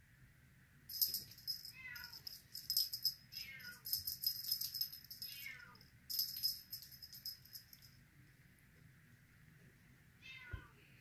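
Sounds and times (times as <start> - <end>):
rattle shaken jingling: 0.9 - 8.0.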